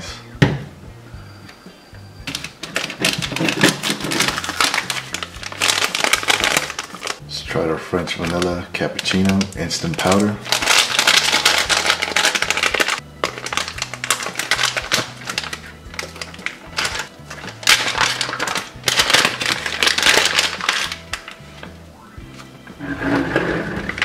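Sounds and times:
foil pouch crinkling: 2.3s - 7.2s, 8.1s - 21.4s
pouch tearing snaps: 8.3s - 21.4s.

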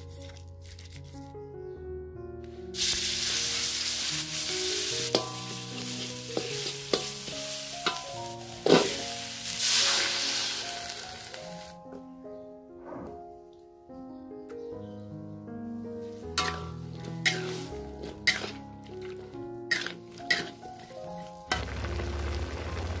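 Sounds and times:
metal spatula scraping wok: 2.8s - 11.4s, 16.3s - 21.7s
paste sizzling in hot oil: 2.8s - 11.7s, 16.4s - 23.0s.

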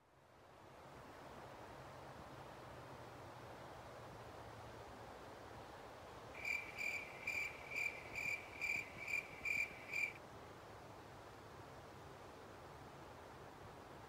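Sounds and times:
cricket chirping: 6.4s - 10.2s.

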